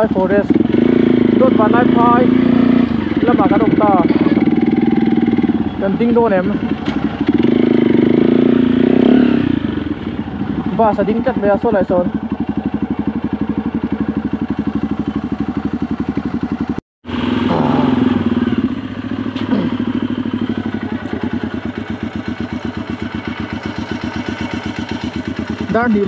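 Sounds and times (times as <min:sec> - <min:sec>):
small engine running: 0:17.1 - 0:26.0.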